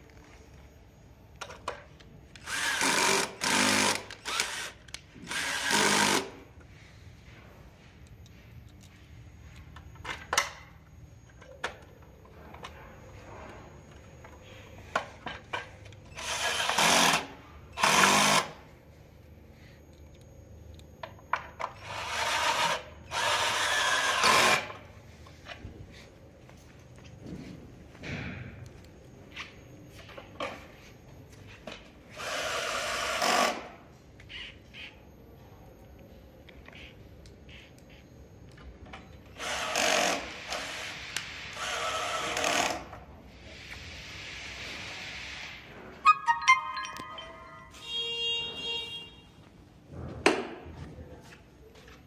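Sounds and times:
cordless drill spinning: 2.4 - 6.3.

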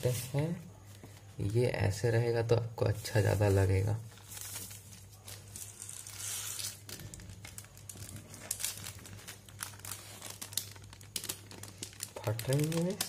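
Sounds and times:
plastic and paper crinkling: 2.9 - 13.0.

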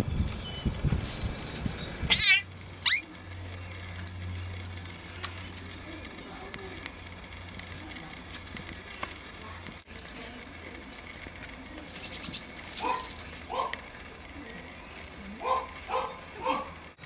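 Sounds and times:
high rapid chirping: 10.9 - 14.2.

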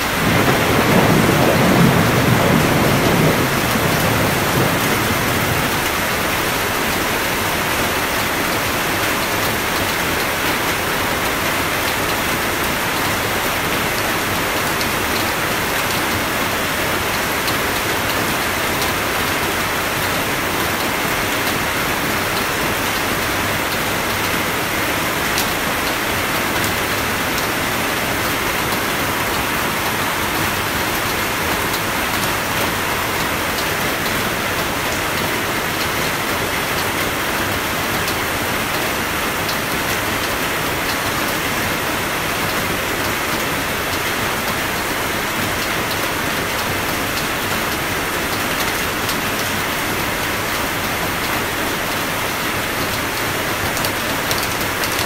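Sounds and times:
low thunder rumble: 0.0 - 6.7
steady rain hiss: 0.0 - 55.0.

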